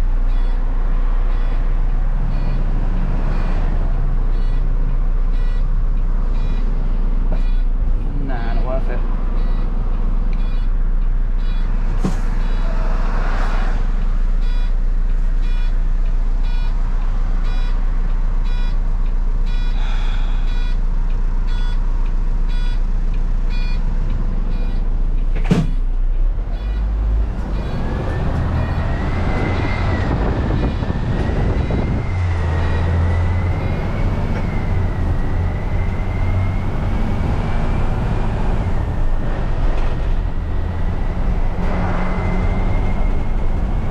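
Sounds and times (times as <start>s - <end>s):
diesel lorry engine: 0.0s - 43.9s
indicator ticking: 0.2s - 2.7s, 3.3s - 11.8s, 14.0s - 19.8s, 20.4s - 29.7s.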